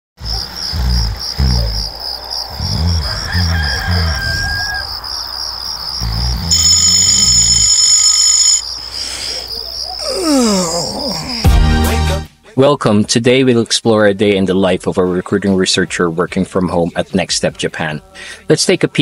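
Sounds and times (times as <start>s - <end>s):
crickets chirping: 0.2s - 11.5s
rooster crowing: 2.8s - 5.8s
phone alarm tone ringing: 6.5s - 9.0s.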